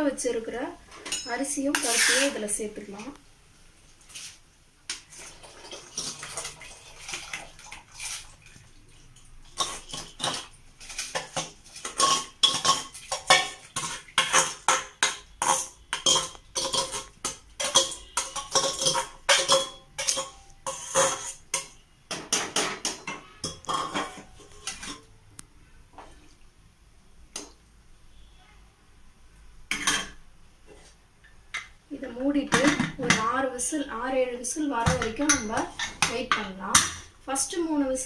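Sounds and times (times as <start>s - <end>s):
ladle scraping metal pot: 0.9s - 2.6s, 9.4s - 25.1s.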